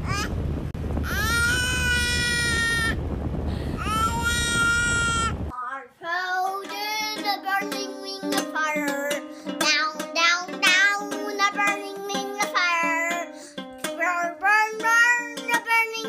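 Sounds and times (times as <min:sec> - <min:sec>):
girl singing: 0:01.1 - 0:02.8, 0:03.8 - 0:16.0
baby squealing: 0:01.1 - 0:03.0, 0:03.8 - 0:05.4
toy guitar strumming: 0:06.2 - 0:16.0.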